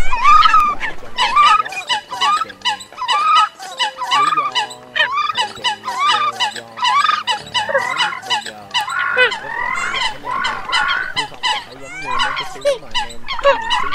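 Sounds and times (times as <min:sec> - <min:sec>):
coots honking calls: 0:00.0 - 0:13.9
held low music notes: 0:00.0 - 0:13.9.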